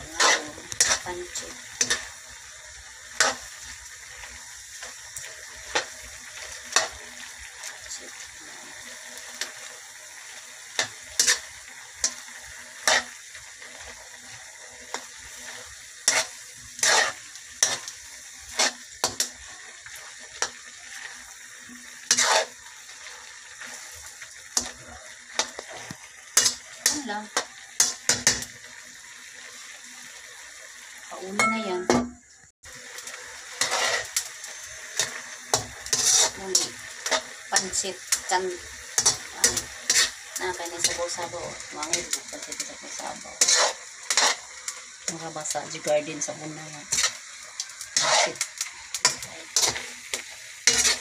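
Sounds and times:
metal spatula scraping a pan: 0:00.0 - 0:02.2, 0:03.1 - 0:07.7, 0:10.6 - 0:28.5, 0:33.4 - 0:45.0, 0:46.8 - 0:51.0
noodles sizzling in a wok: 0:00.0 - 0:51.0.

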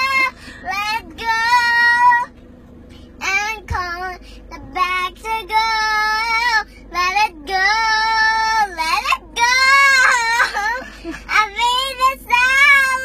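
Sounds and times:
girl singing unaccompanied: 0:03.2 - 0:13.0.

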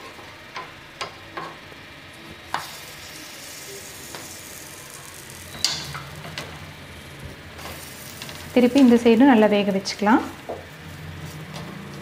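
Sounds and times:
pancakes sizzling in a pan: 0:02.3 - 0:09.0.

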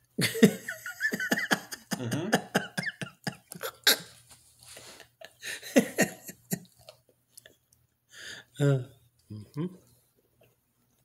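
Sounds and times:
people laughing: 0:00.2 - 0:04.0, 0:05.4 - 0:06.7.

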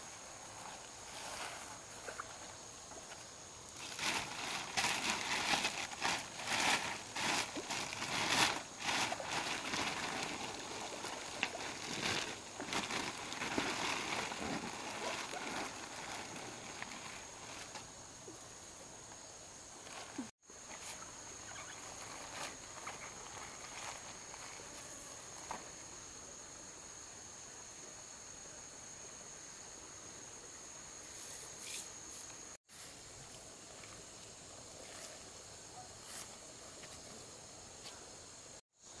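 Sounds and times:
plastic sheeting rustling: 0:03.8 - 0:17.8.

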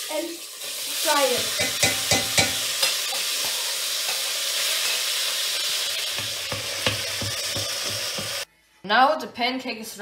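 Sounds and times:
meat sizzling in a pot: 0:00.0 - 0:08.5.

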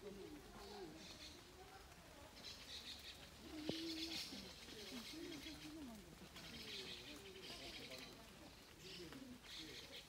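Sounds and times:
light rain hiss: 0:00.0 - 0:10.0
dove cooing: 0:02.6 - 0:08.1.

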